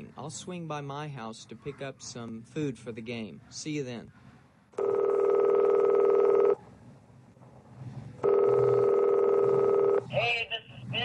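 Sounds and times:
telephone ringing tone: 4.8 - 6.6, 8.2 - 10.1.

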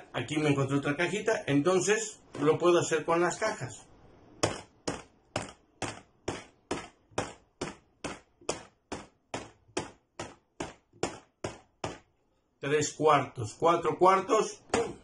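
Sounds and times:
knocks on small boxes: 4.4 - 12.2.

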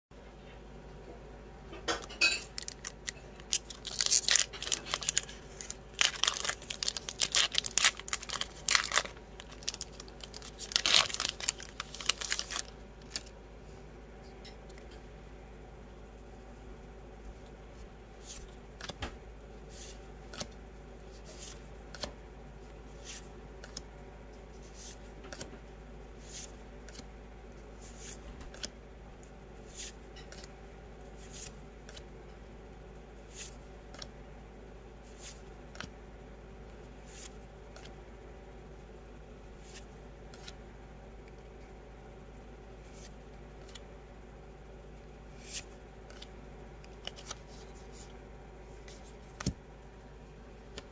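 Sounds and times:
cards being slid and flicked: 21.1 - 22.1, 22.9 - 23.9, 24.6 - 25.5, 27.8 - 28.7, 29.7 - 30.5, 31.2 - 32.0, 33.3 - 34.1, 35.0 - 35.9, 37.0 - 38.0, 39.6 - 40.6, 42.8 - 43.8, 45.4 - 46.3, 47.0 - 48.2, 48.8 - 49.6.

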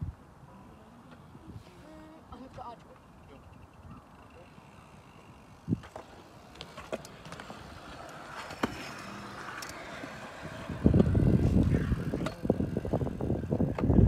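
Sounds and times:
hard wheels rolling on concrete: 4.2 - 14.0.

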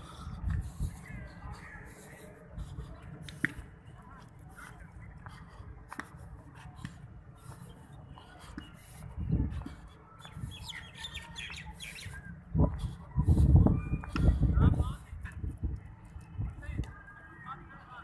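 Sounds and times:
birds chirping: 4.6 - 14.4.

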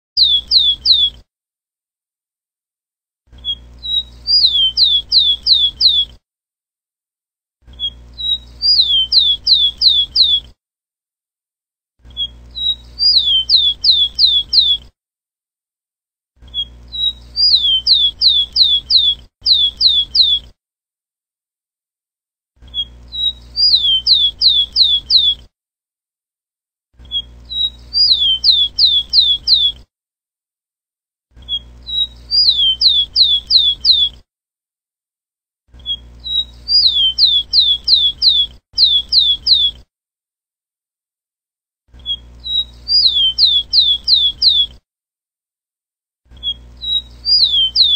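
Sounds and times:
sparrow whistling song: 0.2 - 1.2, 3.4 - 6.2, 7.7 - 10.5, 12.1 - 14.9, 16.5 - 20.5, 22.7 - 25.5, 27.1 - 29.8, 31.4 - 34.2, 35.8 - 39.8, 42.0 - 44.8, 46.4 - 47.9.

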